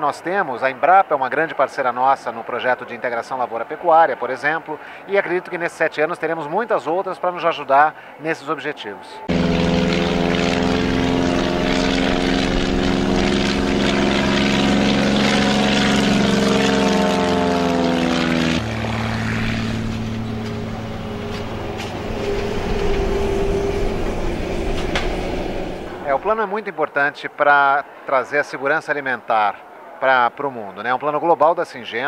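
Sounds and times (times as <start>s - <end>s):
propeller airplane engine droning: 9.3s - 26.4s.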